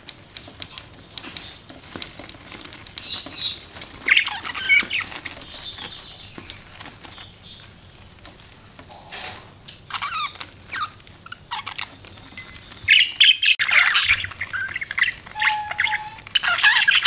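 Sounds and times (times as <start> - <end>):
high bird chirps: 9.9 - 17.0
budgerigars chattering: 12.9 - 17.0.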